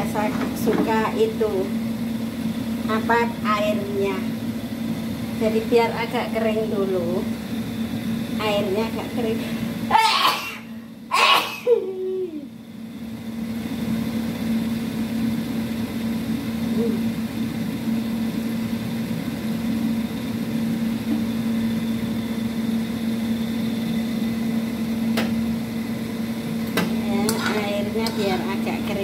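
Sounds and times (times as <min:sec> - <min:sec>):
gas stove flame rushing: 0:00.0 - 0:10.0, 0:12.6 - 0:29.0
broth boiling: 0:00.0 - 0:11.1, 0:11.7 - 0:29.0.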